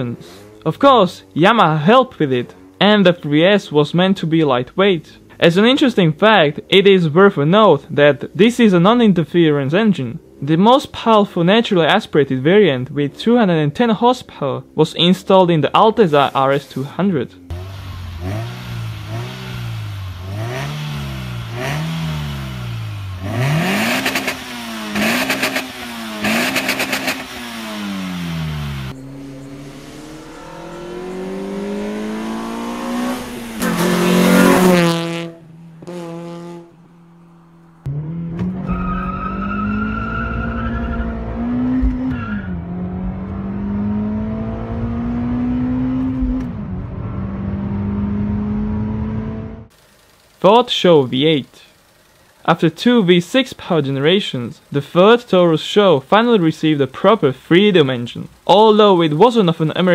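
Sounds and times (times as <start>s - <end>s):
car engine revving: 17.5s - 50.3s
car engine accelerating: 17.5s - 50.4s.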